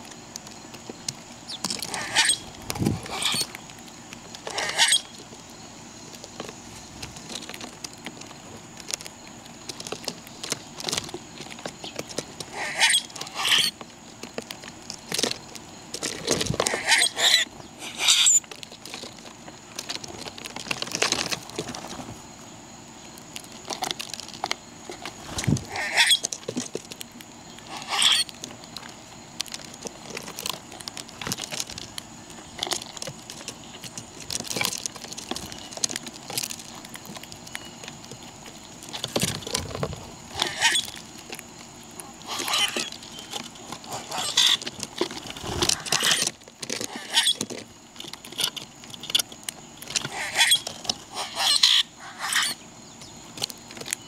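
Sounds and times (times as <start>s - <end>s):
birds tapping and pecking: 0.0s - 54.0s
short squeaky bird chirps: 1.5s - 2.5s, 3.1s - 3.5s, 4.6s - 5.1s, 16.8s - 18.4s, 25.8s - 26.2s, 27.7s - 28.2s, 40.4s - 40.9s, 51.2s - 52.6s.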